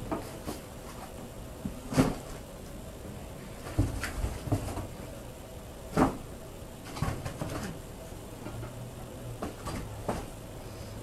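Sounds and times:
items knocking in cardboard box: 5.9 - 6.2.

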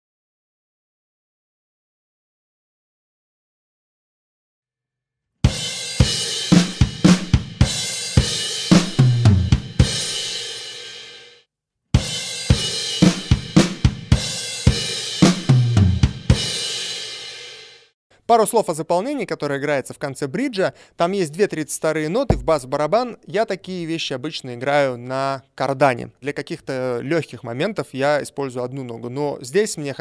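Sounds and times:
acoustic drum kit playing: 5.6 - 10.4, 12.2 - 16.5, 22.3 - 22.7.

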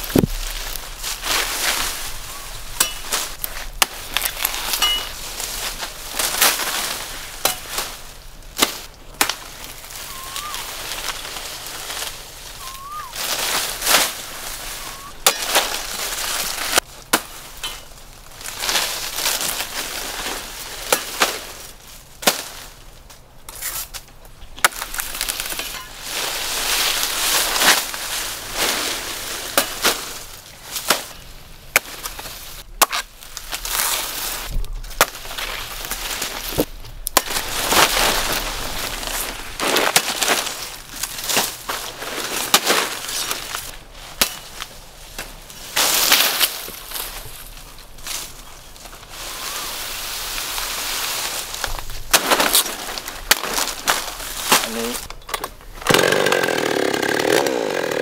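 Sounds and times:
dry crackling: 0.0 - 58.0
blade chopping palm: 15.2 - 15.8.

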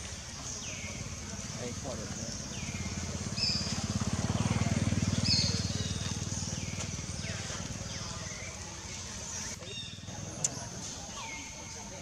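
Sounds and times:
small engine running: 1.4 - 9.5.

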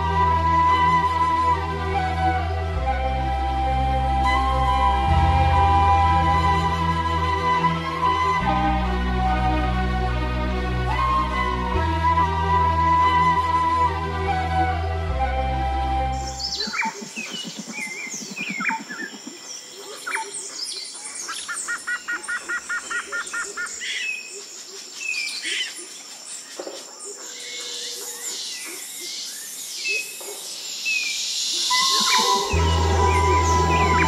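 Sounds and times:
birds chirping and whistling: 15.6 - 24.3, 30.8 - 34.0.

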